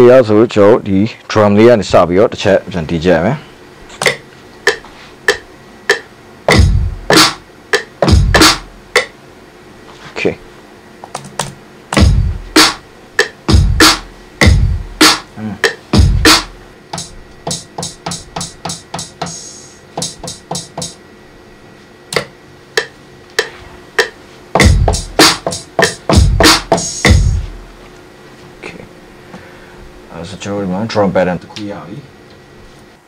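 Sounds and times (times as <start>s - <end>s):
hip-hop drum machine beat: 3.9s - 9.2s, 11.1s - 21.0s, 22.1s - 27.8s.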